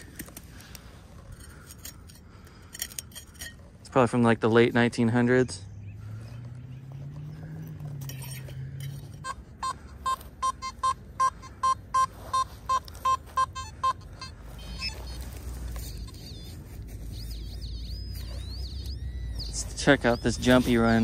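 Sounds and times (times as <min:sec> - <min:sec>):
metal detector beeps: 0:07.6 - 0:21.0.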